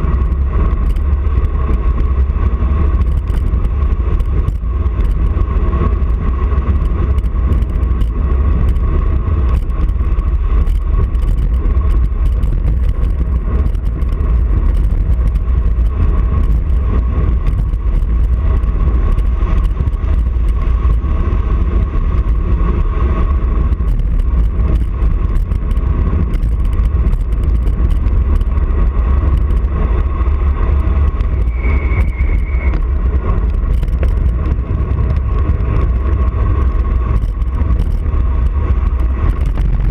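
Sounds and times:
wind rushing over microphone: 0:00.0 - 0:39.9
brief high squeal: 0:31.4 - 0:32.8.

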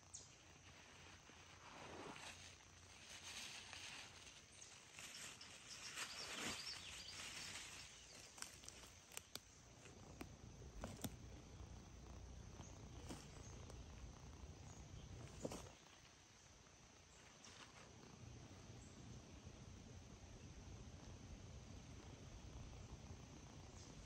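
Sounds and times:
plastic bag and leaves rustling: 0:00.5 - 0:10.2.

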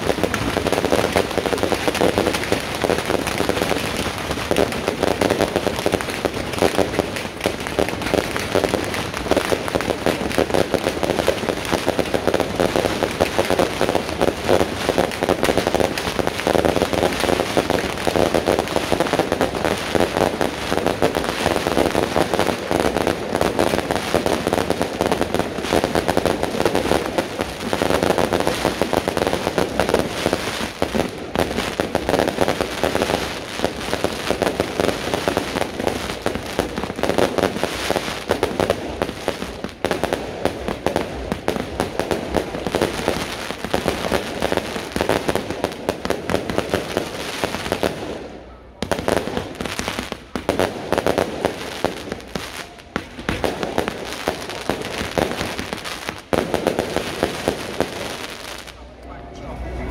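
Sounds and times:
fireworks crackling and popping: 0:00.0 - 0:59.1.

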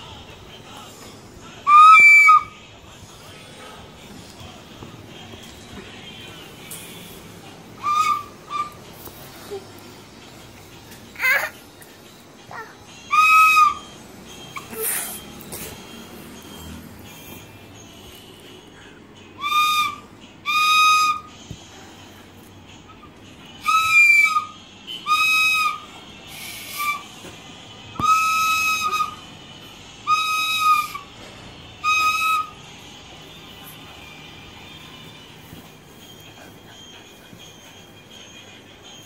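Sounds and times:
toy flute toots: 0:01.6 - 0:02.6, 0:07.8 - 0:08.9, 0:12.4 - 0:17.6, 0:19.3 - 0:21.4, 0:22.7 - 0:27.3, 0:27.9 - 0:29.3, 0:30.0 - 0:32.7.

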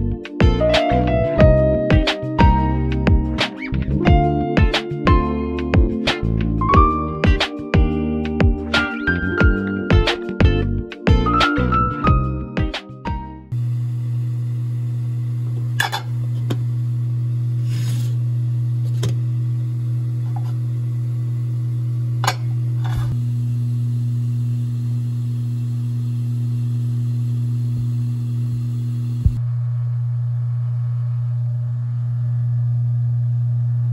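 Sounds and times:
steady low hum: 0:13.5 - 0:33.9.

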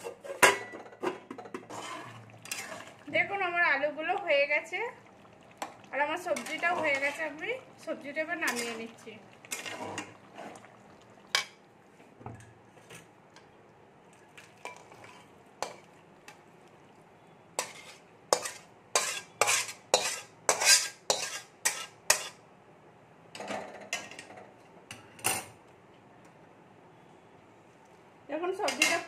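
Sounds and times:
spatula scraping metal pan: 0:01.7 - 0:03.0, 0:17.6 - 0:22.4.

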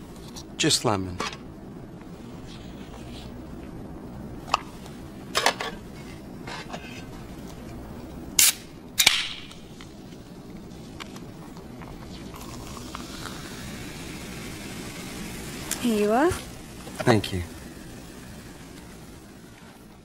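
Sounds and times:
soda can opening with fizz: 0:08.4 - 0:09.2, 0:12.3 - 0:15.8.

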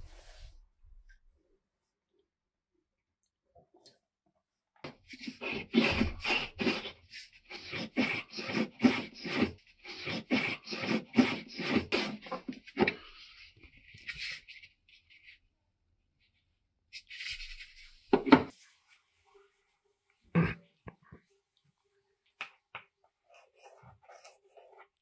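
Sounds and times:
wood being filed by hand: 0:05.1 - 0:14.5.

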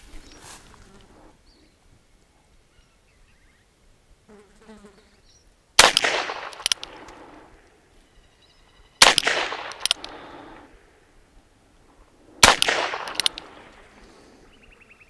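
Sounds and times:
revolver gunshots with echo: 0:05.8 - 0:07.6, 0:09.0 - 0:10.9, 0:12.4 - 0:14.2
light click: 0:09.6 - 0:10.2, 0:12.6 - 0:13.8.

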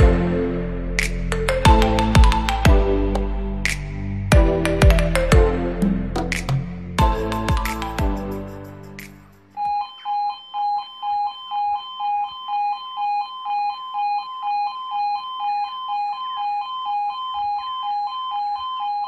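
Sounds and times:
level crossing two-tone alarm: 0:01.3 - 0:02.9, 0:09.5 - 0:19.0.

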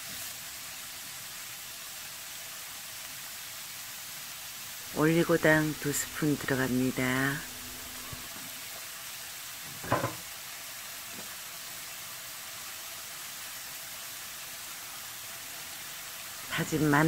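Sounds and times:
vegetables sizzling in oil: 0:00.0 - 0:17.0.

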